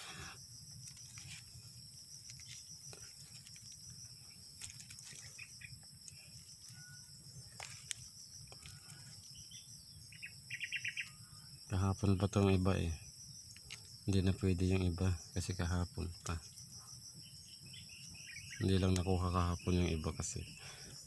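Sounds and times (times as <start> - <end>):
insects droning: 0.0 - 21.0
faint clicks and rustles: 0.8 - 9.4.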